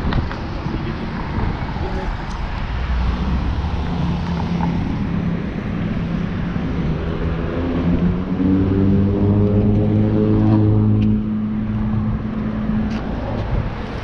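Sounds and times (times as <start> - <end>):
passing motor vehicles: 0.0 - 14.0.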